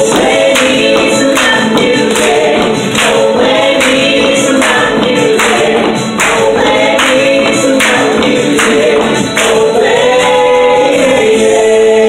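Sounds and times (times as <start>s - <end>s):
honky-tonk music: 0.0s - 12.0s
people singing together: 0.0s - 12.0s
hand claps: 0.2s - 9.8s.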